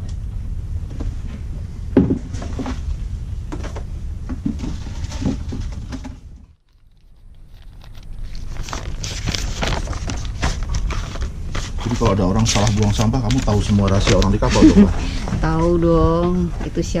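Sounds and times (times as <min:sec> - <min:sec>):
steady low hum: 0:00.0 - 0:17.0
waste bin knocks: 0:02.0 - 0:02.6
paper and plastic rustling: 0:04.6 - 0:15.6.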